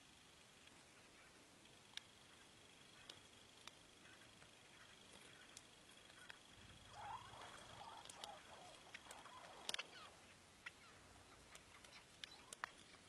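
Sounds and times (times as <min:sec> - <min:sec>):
faint high whine: 0:00.0 - 0:13.0
light clicks: 0:04.4 - 0:10.0, 0:10.6 - 0:13.0.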